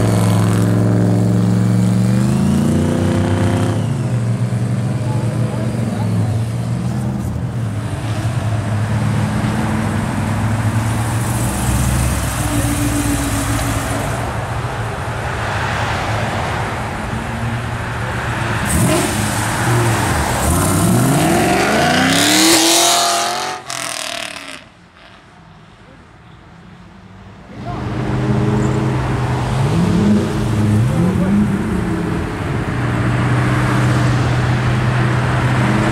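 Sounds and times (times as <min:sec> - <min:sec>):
cars driving past: 0:00.0 - 0:35.9
car accelerating hard: 0:18.6 - 0:24.6.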